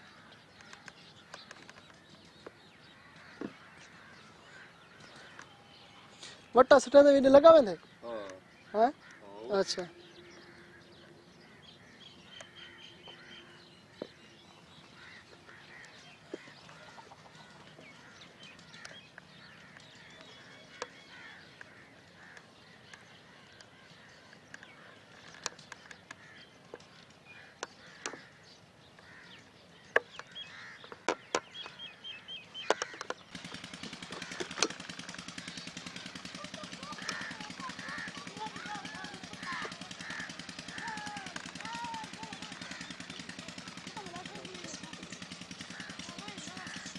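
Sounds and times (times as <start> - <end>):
birds calling: 0.0 - 46.9
sharp clicks: 0.6 - 2.6, 32.6 - 46.9.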